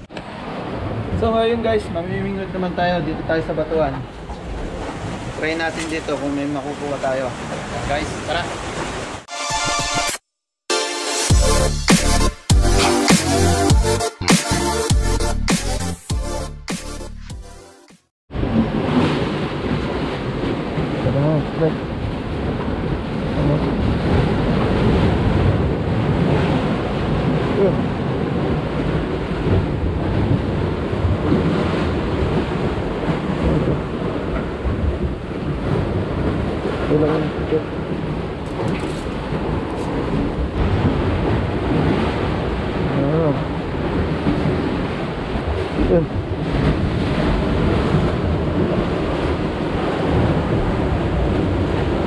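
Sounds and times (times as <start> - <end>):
sea water sloshing: 4.0 - 9.3
wind buffeting microphone: 18.3 - 52.0.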